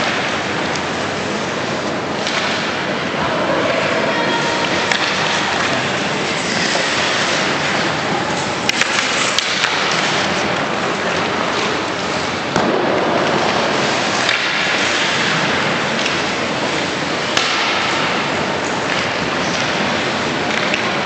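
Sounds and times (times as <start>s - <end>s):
sticks and puck clacking: 1.7s - 3.0s, 3.7s - 21.0s
skate blades scraping ice: 4.4s - 12.5s, 13.2s - 21.0s.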